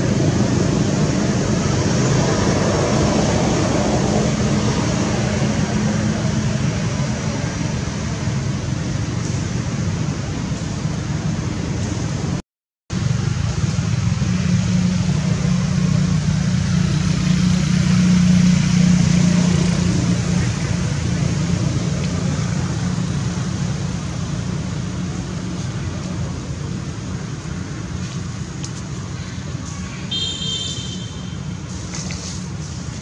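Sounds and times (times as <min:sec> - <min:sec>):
vehicle passing: 0:13.0 - 0:30.1.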